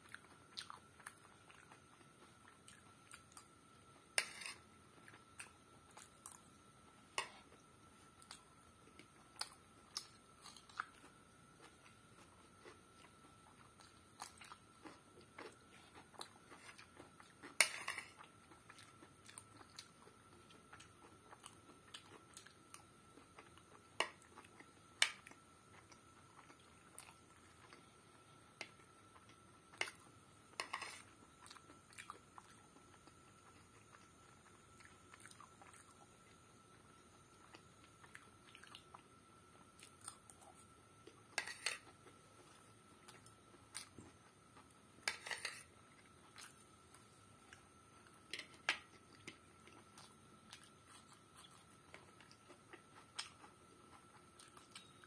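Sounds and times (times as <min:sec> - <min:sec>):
chewing and mouth sounds: 0:00.0 - 0:03.6, 0:37.4 - 0:39.1, 0:45.9 - 0:55.0.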